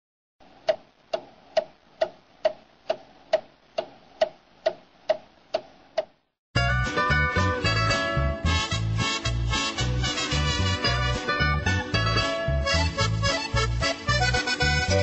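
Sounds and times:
steady ticking clicks: 0.6 - 6.2
music: 6.6 - 15.0.

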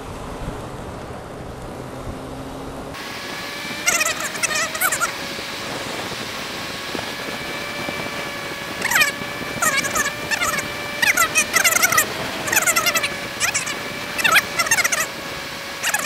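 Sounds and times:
motorcycle engine: 0.0 - 16.0
wind noise: 0.0 - 16.0
high wavering squeals: 3.0 - 16.0.

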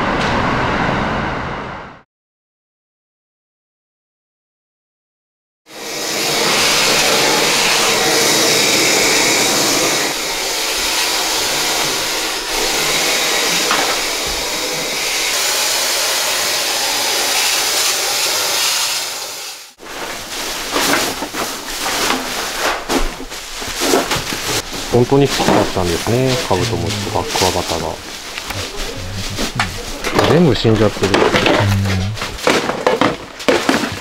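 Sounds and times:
sprayer hissing: 5.8 - 19.7, 25.6 - 32.4
plastic bags rustling: 19.8 - 31.5.

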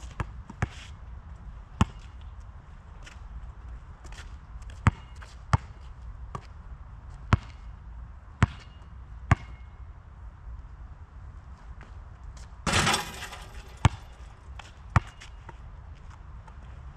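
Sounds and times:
basketball bouncing on asphalt: 4.8 - 5.7, 12.7 - 14.4.

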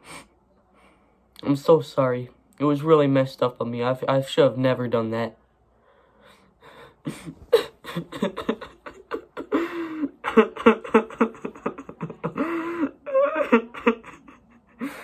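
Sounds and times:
boy sobbing and gasping: 6.6 - 15.0.

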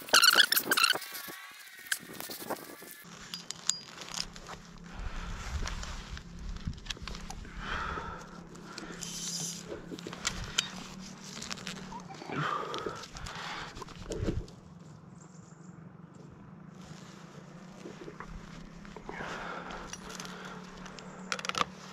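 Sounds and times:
heavy breaths: 4.8 - 14.6, 17.8 - 21.9
cable and metal clamp clicking: 8.7 - 12.0, 19.8 - 21.8.

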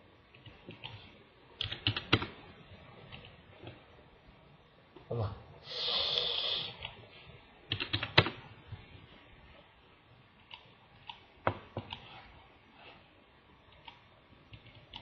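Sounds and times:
keyboard and mouse clicking: 0.3 - 2.4, 7.7 - 8.4, 10.4 - 12.1, 13.7 - 15.0.

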